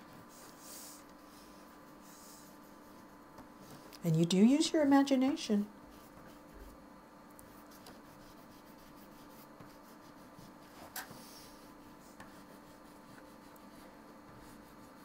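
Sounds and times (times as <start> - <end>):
oil pastel scratching on paper: 0.0 - 3.1, 5.9 - 6.8, 7.4 - 15.0.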